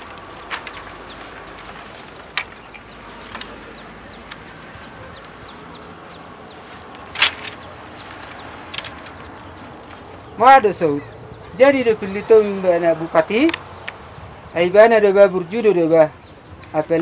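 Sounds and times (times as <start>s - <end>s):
dry sticks cracking: 0.0s - 10.6s, 13.3s - 14.0s
birds chirping: 0.0s - 17.0s.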